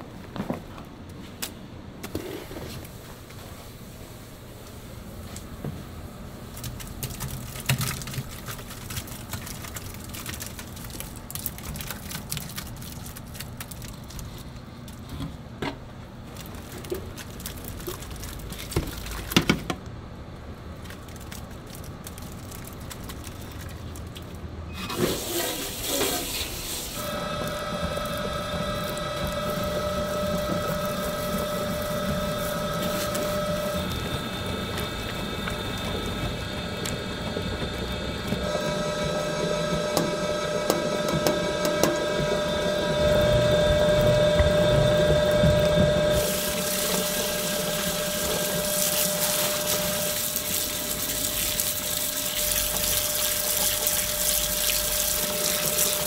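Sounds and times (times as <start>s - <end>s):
water running: 22.2s - 56.0s
machine humming: 27.0s - 56.0s.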